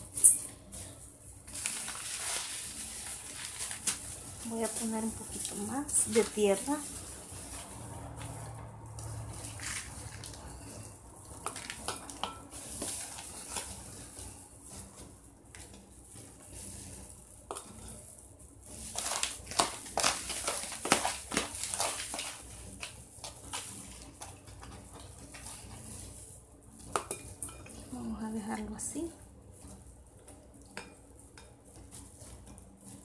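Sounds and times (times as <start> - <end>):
plastic scoop scraping soil: 1.4 - 10.8.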